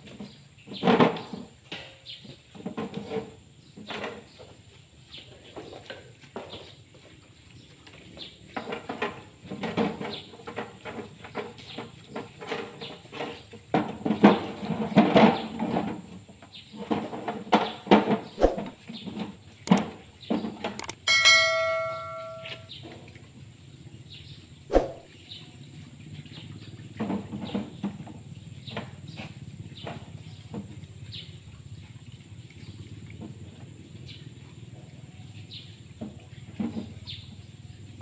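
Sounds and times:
bright bell chime: 21.1 - 22.7.

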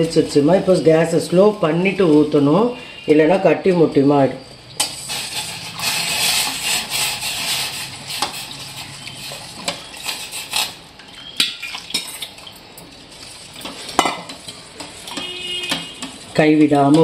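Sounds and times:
metal ladle scraping a pot: 4.8 - 12.2, 13.2 - 16.4.

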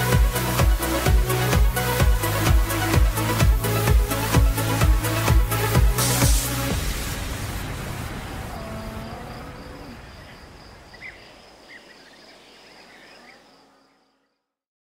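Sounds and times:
noise wash from music: 0.0 - 8.5.

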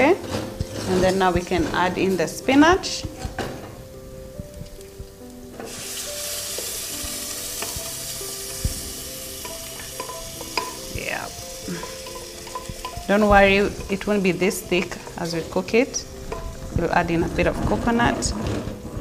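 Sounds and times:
food sizzling in hot oil: 4.1 - 17.5.

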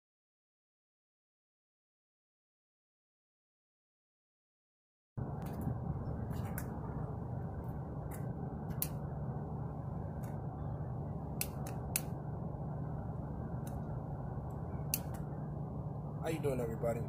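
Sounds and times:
low background rumble: 5.2 - 17.0.

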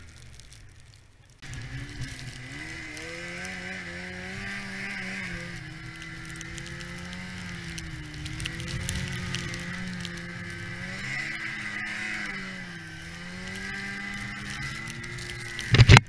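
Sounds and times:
snowmobile two-stroke engine: 1.4 - 16.0
scattered clicks: 13.0 - 16.0.

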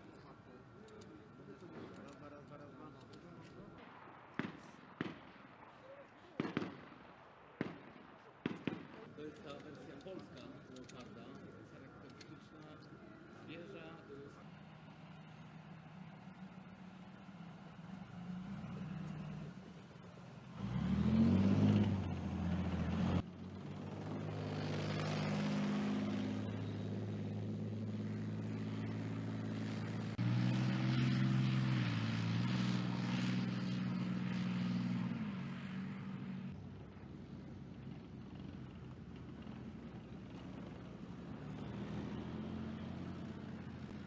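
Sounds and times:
tank engines revving: 9.2 - 44.0.

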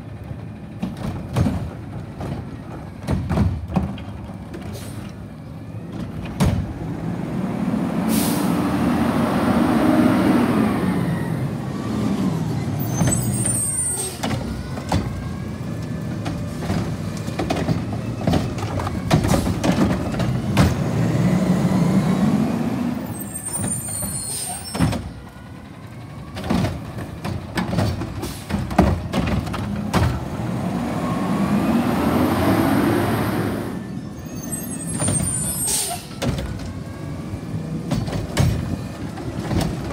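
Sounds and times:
carts clunking and rattling: 0.1 - 6.8, 12.7 - 21.3, 23.3 - 30.6, 34.6 - 39.9
garbage truck engine revving: 6.5 - 24.0, 25.3 - 39.9.

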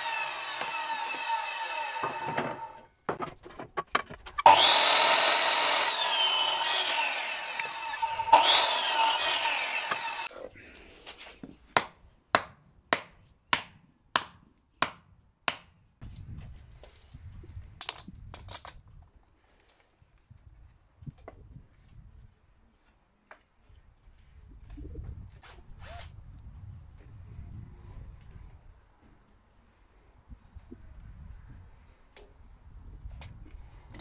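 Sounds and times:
mitre saw cutting wood: 0.0 - 2.9, 4.4 - 10.3.

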